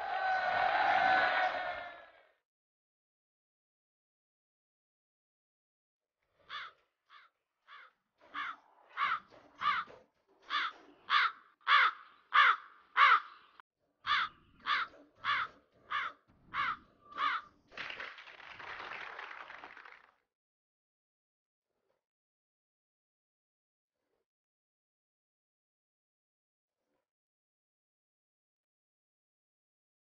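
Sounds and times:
cartoon crow cawing: 0:06.5 - 0:09.9, 0:10.5 - 0:13.4, 0:14.1 - 0:17.5
clapping sound effect: 0:17.7 - 0:20.3.

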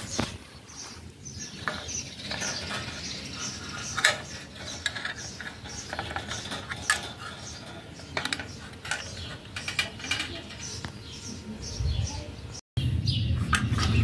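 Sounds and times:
metallic clicks and rattles: 0:01.6 - 0:11.1.

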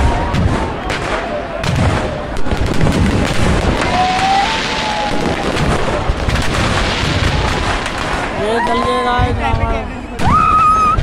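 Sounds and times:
fireworks bangs and crackle: 0:00.0 - 0:11.0.

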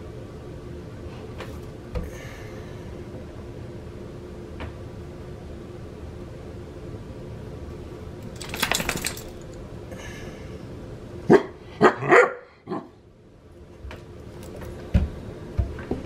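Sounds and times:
dog barking: 0:11.3 - 0:12.9.

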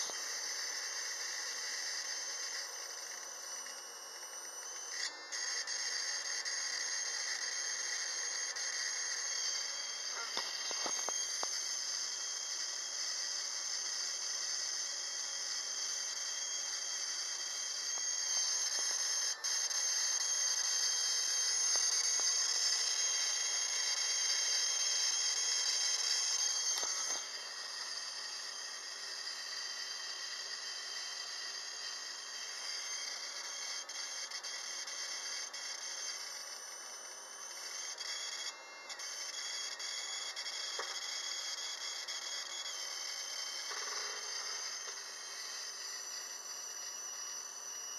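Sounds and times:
ignition coil hissing buzz: 0:00.0 - 0:04.2, 0:04.9 - 0:30.7.

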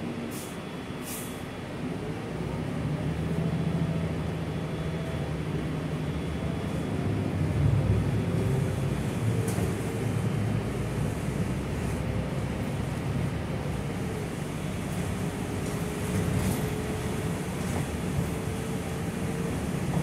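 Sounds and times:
bus engine humming: 0:00.0 - 0:20.0
road noise: 0:00.0 - 0:20.0
short air hisses: 0:00.3 - 0:01.4.

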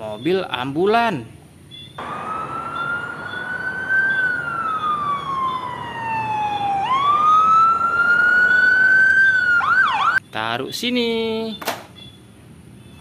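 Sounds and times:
ambulance siren wailing: 0:02.0 - 0:10.2.

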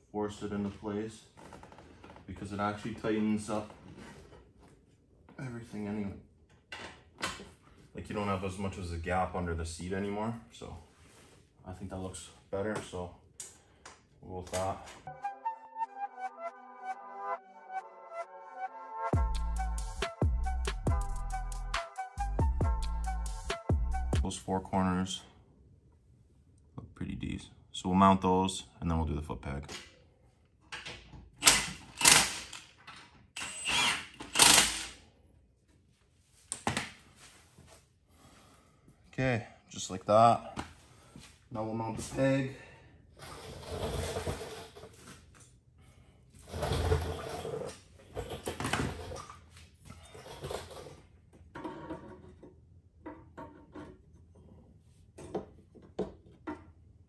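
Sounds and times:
rustling and scraping: 0:00.6 - 0:05.1, 0:43.2 - 0:45.5.

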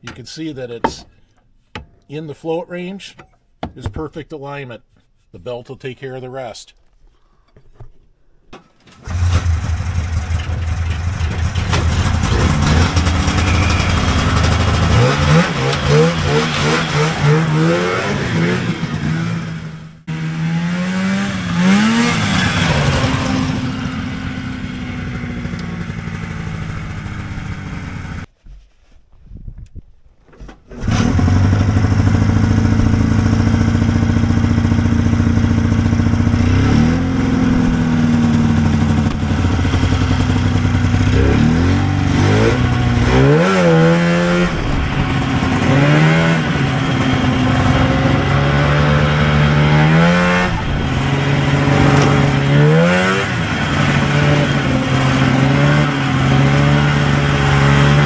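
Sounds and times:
snowmobile engine revving: 0:09.0 - 0:28.3, 0:30.7 - 0:58.0.

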